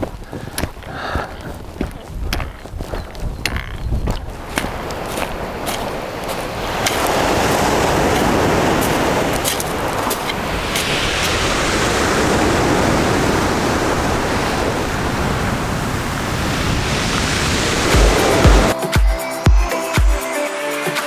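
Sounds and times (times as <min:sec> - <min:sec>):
sea surf rushing: 0:04.3 - 0:18.8.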